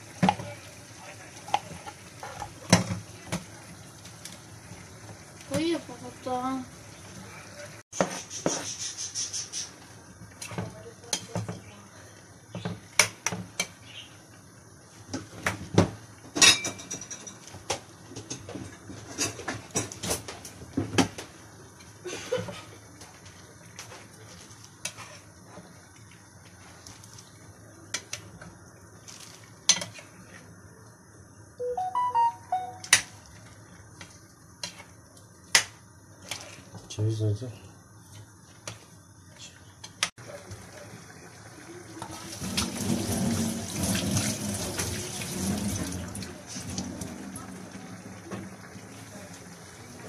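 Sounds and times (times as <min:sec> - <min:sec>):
brief pitched sound: 0:31.6 - 0:33.0.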